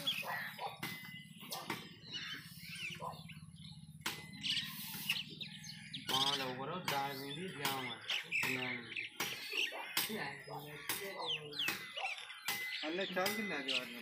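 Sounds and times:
birds chirping: 0.0 - 14.0
sharp knocks: 0.8 - 2.0, 4.0 - 4.4, 6.0 - 10.2.

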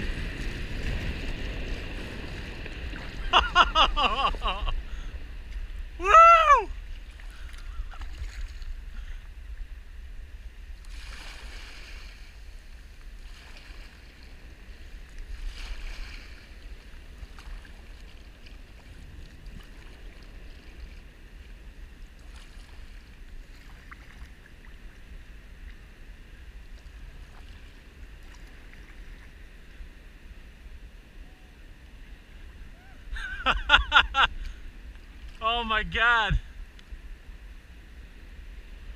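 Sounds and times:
water lapping against kayak: 0.0 - 9.5, 10.7 - 30.2
glacier calving rumble: 0.0 - 10.7.

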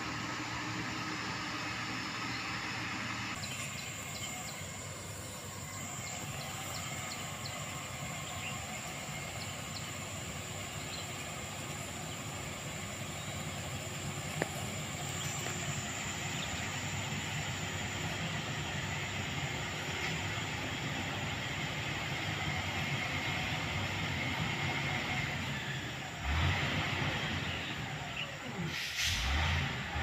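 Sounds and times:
steady high whine: 0.0 - 26.2
distant diesel engine running: 0.0 - 30.0.

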